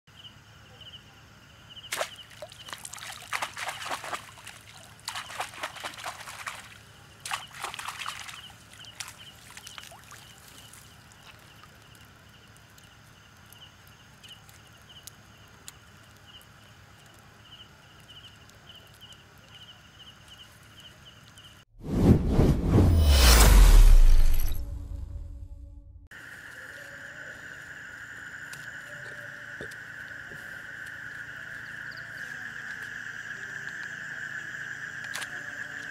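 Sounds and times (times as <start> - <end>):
night insects chirping: 0.1 - 21.6, 26.1 - 35.9
water sloshing and splashing: 1.9 - 12.0.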